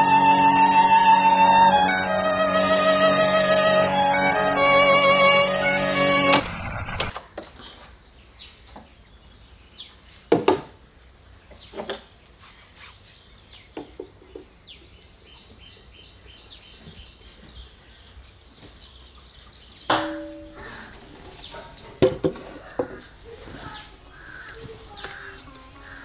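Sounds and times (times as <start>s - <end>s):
small birds chirping: 7.4s - 10.3s, 10.9s - 26.0s.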